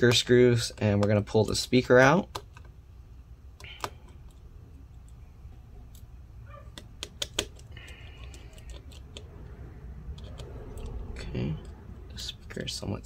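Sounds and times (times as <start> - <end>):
low steady hum: 0.0 - 13.0
screwdriver clicking on screws: 6.7 - 9.4.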